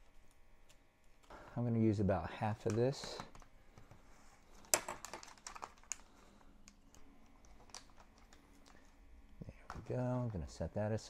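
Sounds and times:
plastic package handling: 4.5s - 9.0s.

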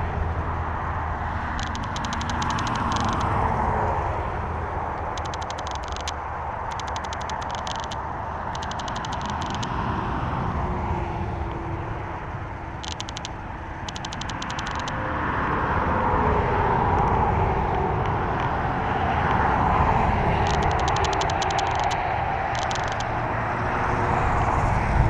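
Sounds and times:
motor vehicle running: 0.0s - 25.0s
fast high ticking: 1.6s - 3.3s, 5.0s - 9.8s, 12.8s - 15.0s, 20.4s - 23.1s.

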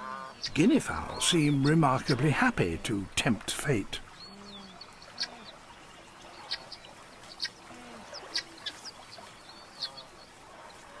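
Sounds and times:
guineafowl calling: 4.3s - 5.6s, 6.4s - 11.0s.

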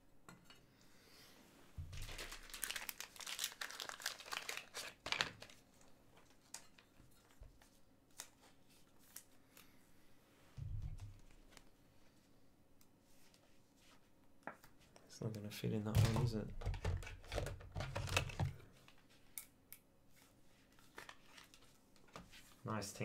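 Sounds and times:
thin plastic crinkling: 1.8s - 9.7s, 16.0s - 19.3s, 20.6s - 22.4s.

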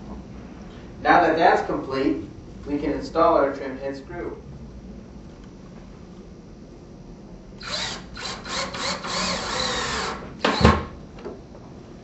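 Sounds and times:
cordless drill driving a screw: 7.6s - 10.8s.

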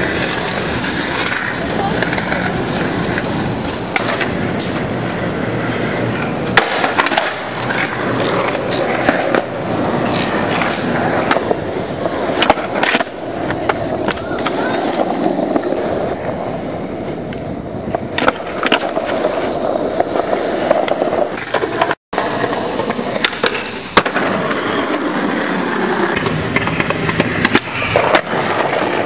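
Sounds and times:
skateboard clacking on ground: 0.0s - 29.0s
skateboard wheels rolling on pavement: 0.0s - 29.0s.

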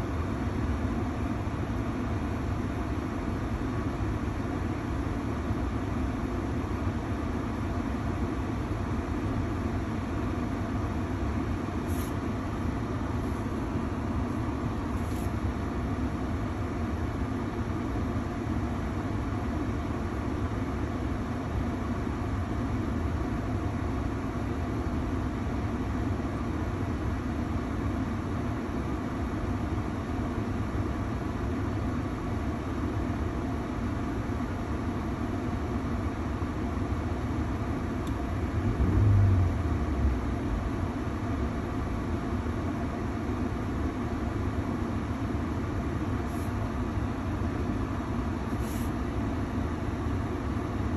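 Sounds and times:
heater blower rushing air: 38.4s - 41.2s.

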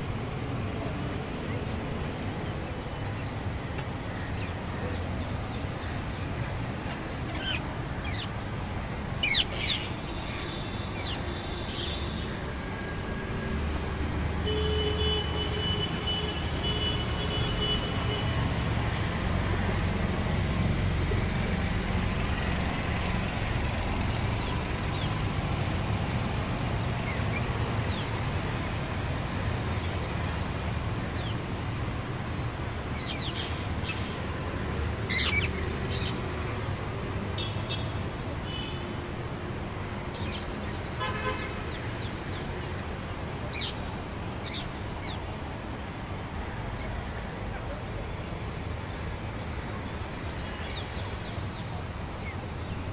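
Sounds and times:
city traffic hum: 0.0s - 52.9s
parakeets screeching: 9.2s - 10.0s.

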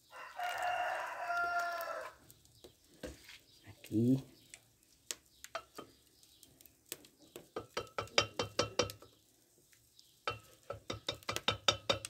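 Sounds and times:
spoon stirring in metal pot: 5.5s - 6.0s, 6.9s - 9.2s, 10.2s - 12.0s.

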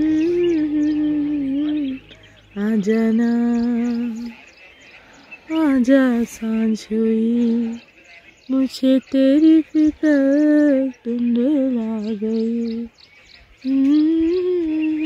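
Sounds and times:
person humming melody: 0.0s - 4.4s, 9.4s - 12.9s, 13.7s - 15.0s.

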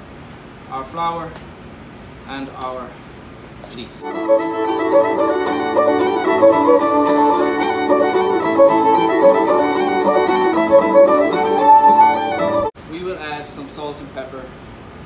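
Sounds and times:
fiddle tune: 4.0s - 12.7s.

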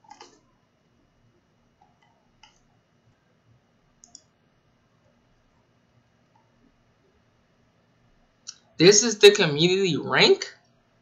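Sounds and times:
computer mouse clicks: 0.0s - 0.5s, 1.8s - 2.8s, 4.0s - 4.4s.

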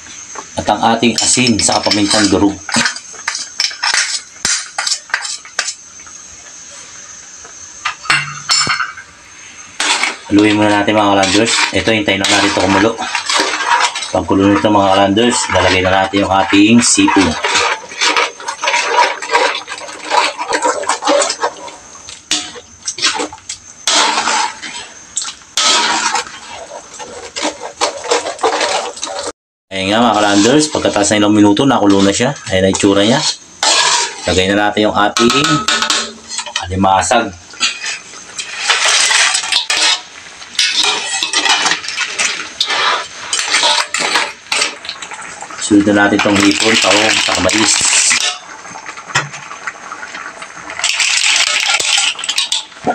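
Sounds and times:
crab shells clattering in wok: 1.4s - 5.8s, 9.8s - 15.8s, 37.6s - 45.4s, 46.2s - 49.5s, 50.2s - 52.9s
liquid sloshing: 9.8s - 29.3s
spoon stirring sauce in a wok: 11.2s - 23.3s.

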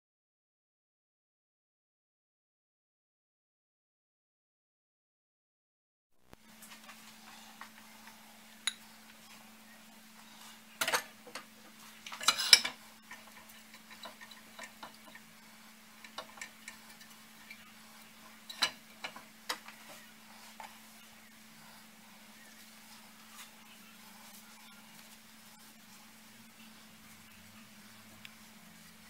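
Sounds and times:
steady low hum: 6.2s - 29.0s
glass dish clinking on metal grates: 12.0s - 15.2s, 18.4s - 19.7s.

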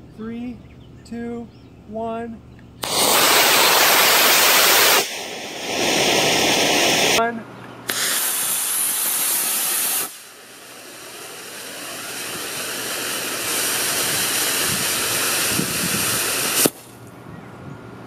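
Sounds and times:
rocket motor hissing: 2.8s - 7.2s, 7.9s - 17.0s.

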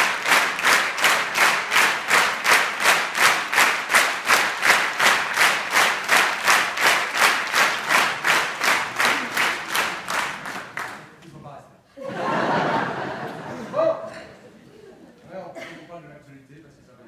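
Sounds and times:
audience clapping in unison: 0.0s - 11.3s.

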